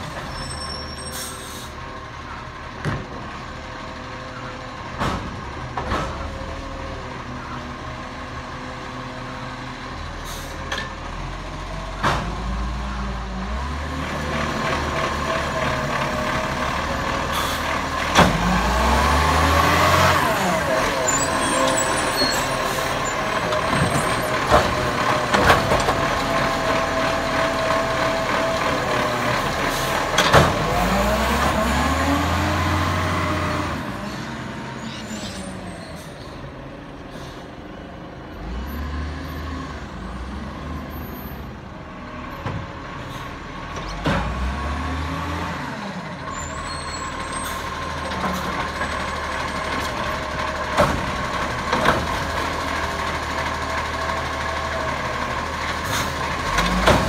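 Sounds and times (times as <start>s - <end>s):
air brakes hissing: 0.4s - 1.8s, 10.2s - 10.6s, 37.0s - 37.6s
garbage truck engine revving: 11.1s - 35.3s.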